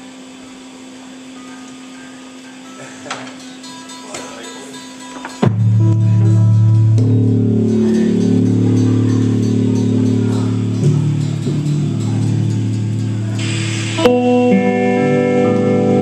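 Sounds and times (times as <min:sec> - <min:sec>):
noisy hiss: 0:00.0 - 0:16.0
electric guitars and bass droning: 0:05.4 - 0:16.0.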